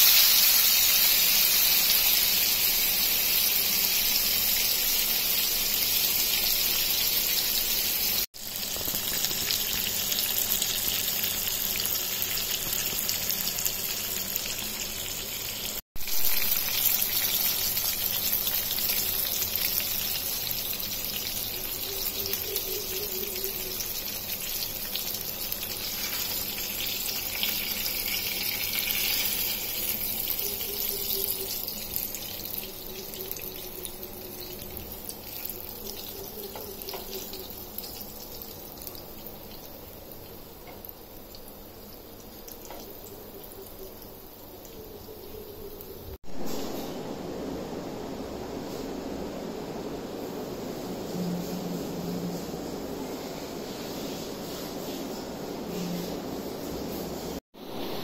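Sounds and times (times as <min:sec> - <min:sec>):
fish frying in hot oil: 0:00.0 - 0:46.2.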